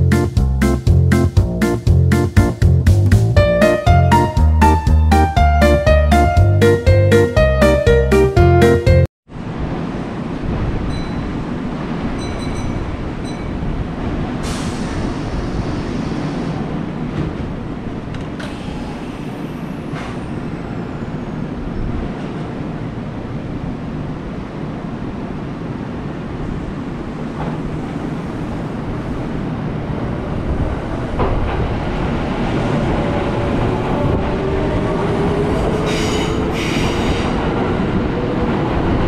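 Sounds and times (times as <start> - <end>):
train wheels and motors rumbling: 9.4 - 39.0.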